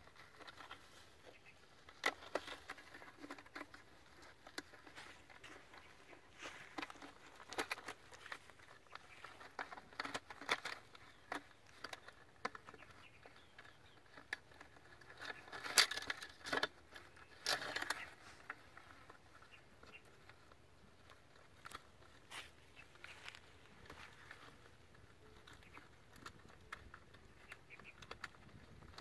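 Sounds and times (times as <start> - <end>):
rustling scrapes: 0.0 - 13.2
plastic grate clicking and scraping: 0.0 - 22.2.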